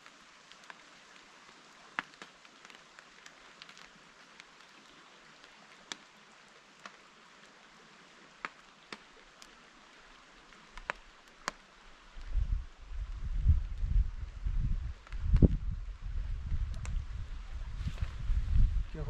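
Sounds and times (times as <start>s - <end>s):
raindrops tapping: 0.0s - 13.9s, 14.9s - 15.8s
light rain hissing: 0.0s - 19.0s
rustling at microphone: 16.3s - 19.0s.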